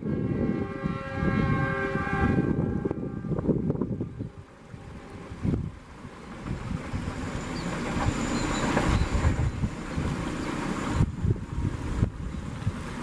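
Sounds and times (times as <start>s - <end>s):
train wheels clattering on rails: 6.1s - 11.1s.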